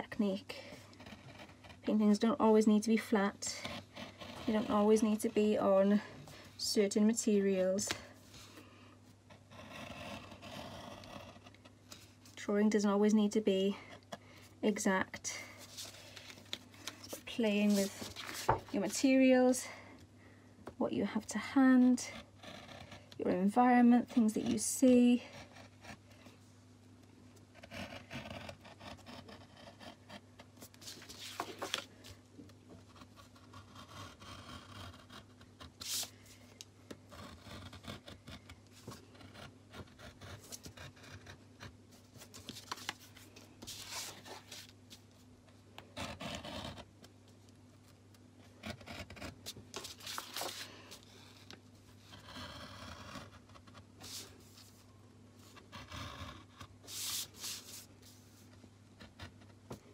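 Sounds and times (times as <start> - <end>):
paper sheet rubbing on table: 17.5 - 18.6, 35.8 - 36.1, 54.0 - 54.8, 56.8 - 58.4.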